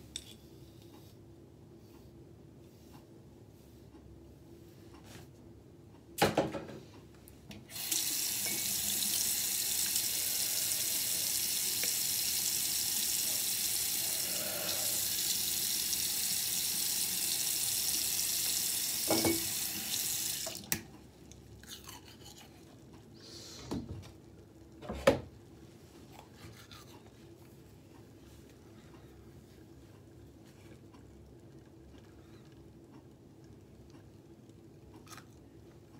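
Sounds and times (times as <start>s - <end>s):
sink tap running: 7.7s - 20.9s.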